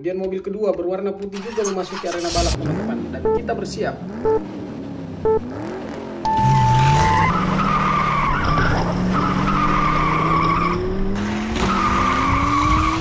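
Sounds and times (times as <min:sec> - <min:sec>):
race car engines revving: 0:01.4 - 0:13.0
steady beep: 0:03.2 - 0:03.6, 0:04.2 - 0:04.4, 0:05.2 - 0:05.5, 0:06.2 - 0:07.5
tyres squealing: 0:06.8 - 0:13.0.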